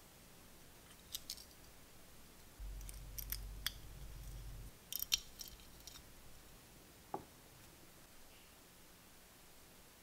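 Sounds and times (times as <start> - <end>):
small metal clicks: 0.9 - 1.7, 4.9 - 6.1
low handling rumble: 2.6 - 4.7.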